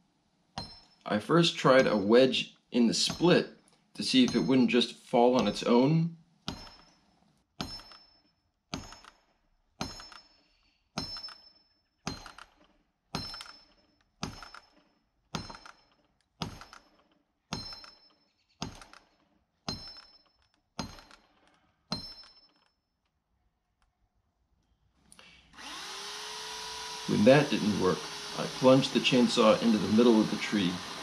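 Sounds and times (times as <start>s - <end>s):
hammer striking metal wedge: 0.5s - 22.6s.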